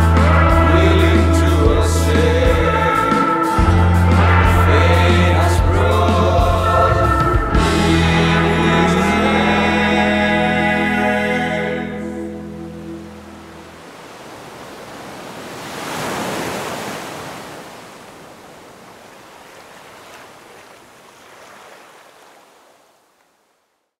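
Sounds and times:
ocean surf on a beach: 11.8s - 23.3s.

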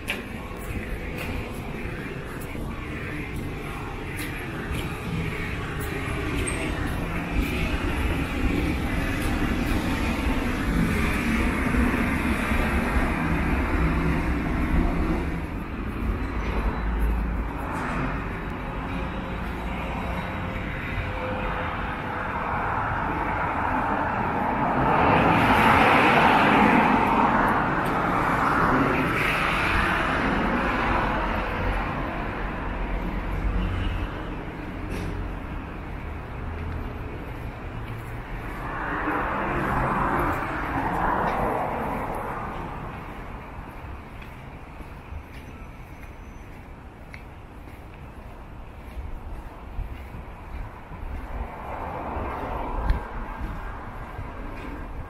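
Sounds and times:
passing vehicles rumble: 0.0s - 55.0s.

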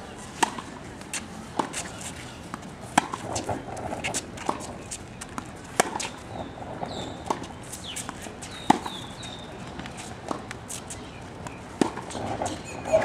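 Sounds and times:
tennis ball bounces: 0.3s - 1.9s, 2.5s - 12.6s.

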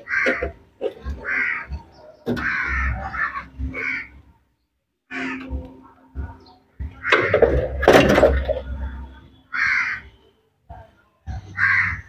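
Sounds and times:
crows cawing: 0.0s - 4.2s, 5.1s - 5.6s, 6.8s - 7.5s, 9.5s - 10.2s, 11.3s - 12.0s.

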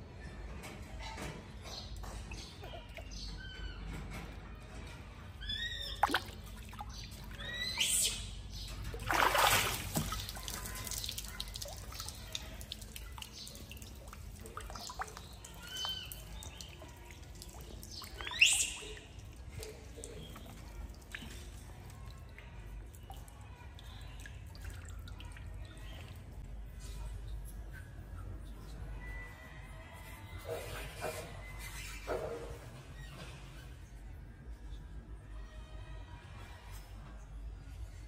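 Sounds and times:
high chirping squeaks: 5.4s - 6.3s
liquid splashing and trickling: 5.8s - 7.6s, 8.5s - 26.6s.

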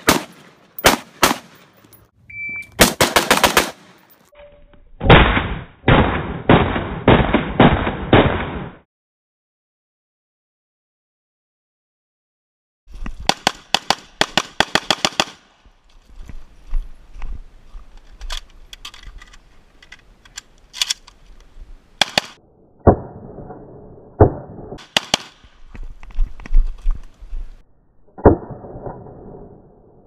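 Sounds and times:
rifle shots: 0.0s - 1.7s, 2.8s - 4.1s, 5.1s - 8.8s, 13.3s - 15.5s, 22.0s - 22.4s, 24.8s - 25.5s.

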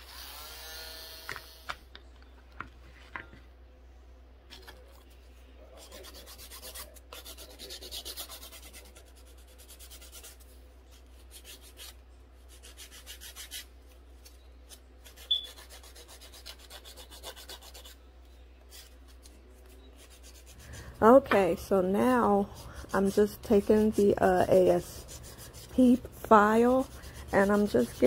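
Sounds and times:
nail file filing a nail: 5.8s - 10.4s, 11.2s - 13.7s, 14.7s - 18.0s, 20.0s - 20.6s, 22.2s - 28.0s.

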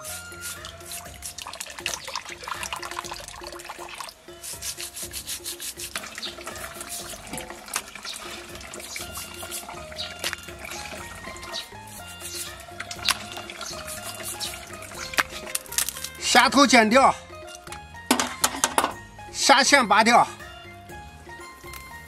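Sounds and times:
brush scrubbing: 0.0s - 16.4s.

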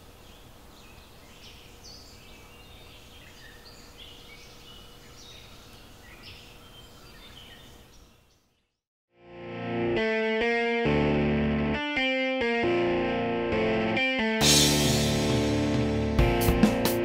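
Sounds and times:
birds chirping: 0.0s - 8.8s
guitar music: 9.1s - 17.0s.

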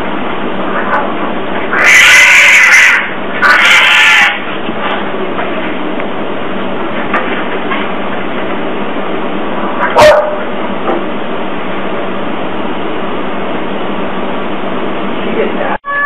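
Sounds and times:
dog barking: 9.8s - 10.5s.

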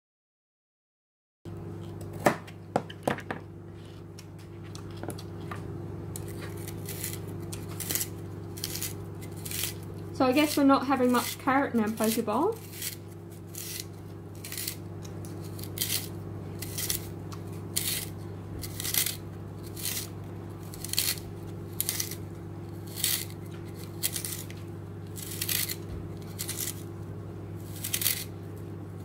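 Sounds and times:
microwave oven humming: 1.5s - 29.0s
spiralizer blade cutting carrot: 4.1s - 28.7s.

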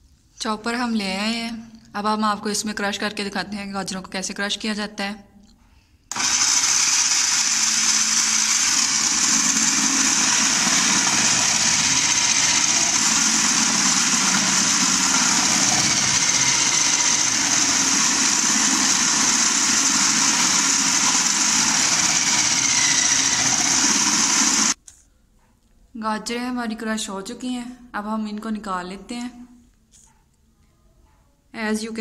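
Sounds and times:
carrots being shredded: 6.1s - 24.8s
food processor motor whine: 6.1s - 24.8s.

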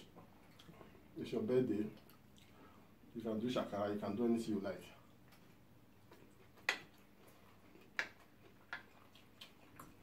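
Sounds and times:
sharp eating clicks: 6.0s - 10.0s.

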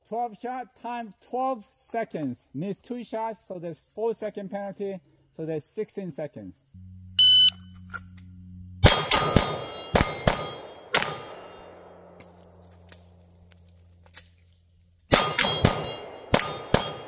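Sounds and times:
shot timer beep: 7.2s - 7.7s
steel targets ringing: 8.8s - 12.2s, 15.1s - 17.0s
pistol shots: 8.8s - 12.3s, 15.1s - 17.0s.

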